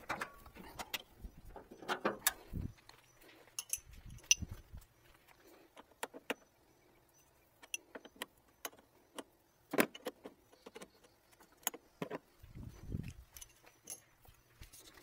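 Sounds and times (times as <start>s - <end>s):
metallic clicks of hand tools: 3.6s - 4.6s, 7.6s - 11.8s.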